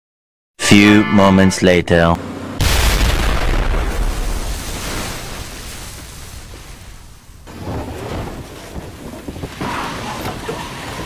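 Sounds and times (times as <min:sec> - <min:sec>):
low rumble of explosions: 0:02.6 - 0:09.7.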